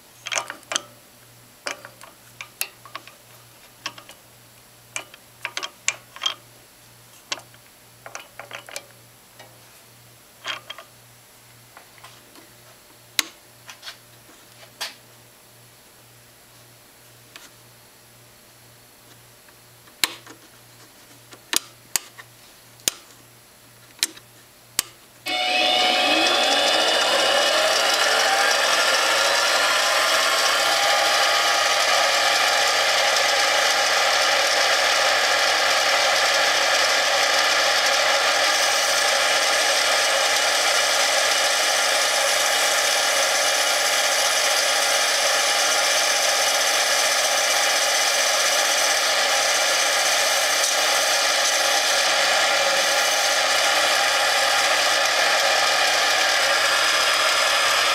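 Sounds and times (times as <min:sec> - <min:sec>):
lathe motor whine: 0:25.3 - 0:57.9.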